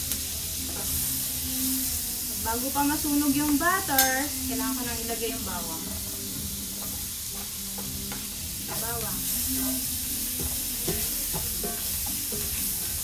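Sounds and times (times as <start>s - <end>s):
garlic sizzling in butter: 0.0s - 13.0s
spatula scraping and tapping pan: 0.6s - 1.1s, 6.7s - 13.0s.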